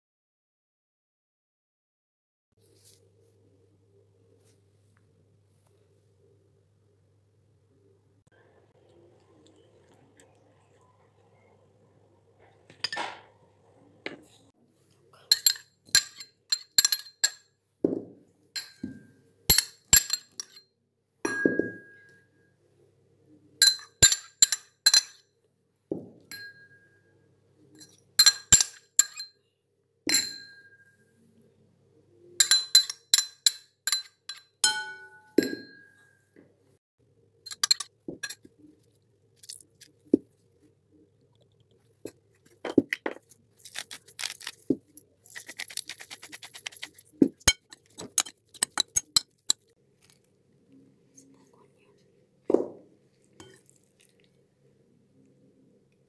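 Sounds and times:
glass bowl clinking: 0:15.3 - 0:20.6, 0:21.3 - 0:22.4, 0:23.6 - 0:25.2, 0:26.3 - 0:27.2, 0:27.8 - 0:29.4, 0:30.1 - 0:31.0, 0:32.4 - 0:36.2, 0:37.5 - 0:38.5, 0:53.4 - 0:53.8.

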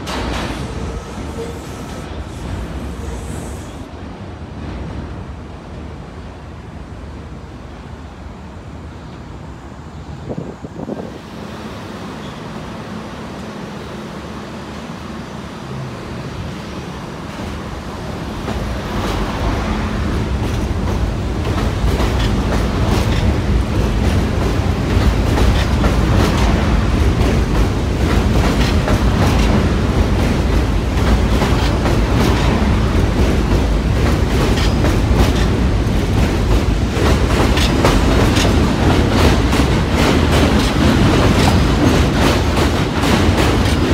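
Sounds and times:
subway train rumbling: 0:00.0 - 0:43.9
wheels clicking over rail joints: 0:20.3 - 0:43.9.

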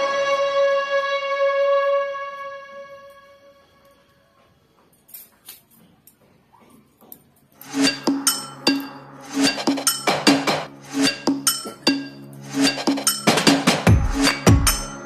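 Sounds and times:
held musical note: 0:00.0 - 0:04.4.

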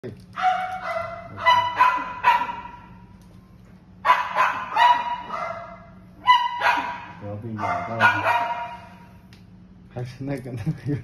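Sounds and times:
dog barking high-pitched: 0:00.4 - 0:03.0, 0:04.0 - 0:09.1.

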